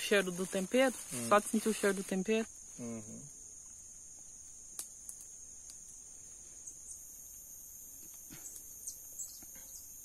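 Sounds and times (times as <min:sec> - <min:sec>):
higher insect buzz: 0:00.0 - 0:10.0
insect chorus: 0:00.0 - 0:10.0
faint clicks and chirps: 0:04.2 - 0:05.9, 0:06.6 - 0:09.9.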